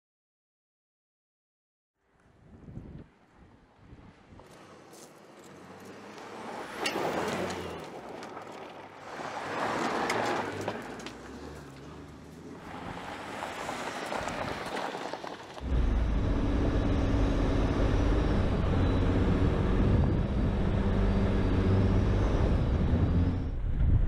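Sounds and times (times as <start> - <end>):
wind rushing over microphone: 2.3 - 4.6, 22.1 - 24.0
vehicle engine driving: 4.4 - 24.0.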